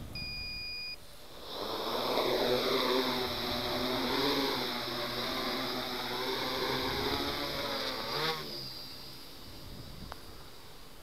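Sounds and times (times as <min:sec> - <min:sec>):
drone propellers whining: 0:01.0 - 0:11.0.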